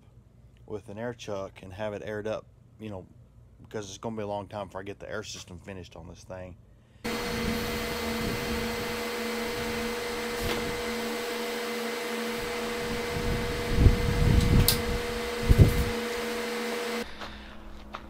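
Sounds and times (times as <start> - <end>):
motor humming: 7.1 - 18.0
sharp click: 14.4 - 14.9.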